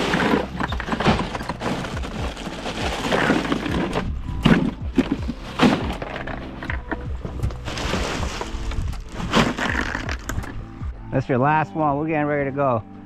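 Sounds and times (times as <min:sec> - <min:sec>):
ice cubes rattling and crunching: 0:00.0 - 0:06.9, 0:07.6 - 0:10.3.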